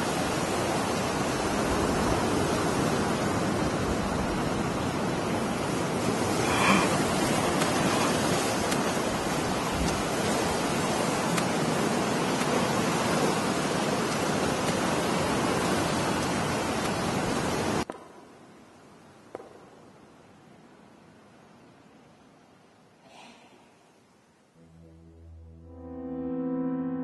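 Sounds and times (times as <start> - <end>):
ocean surf: 0.0 - 17.9
faint hiss: 18.0 - 24.9.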